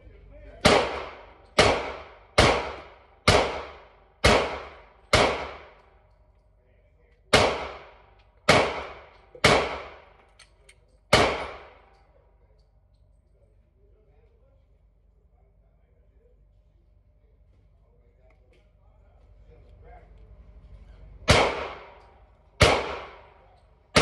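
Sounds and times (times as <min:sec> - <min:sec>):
gunshots ringing indoors: 0:00.5 - 0:06.3, 0:07.3 - 0:12.3, 0:21.2 - 0:24.0.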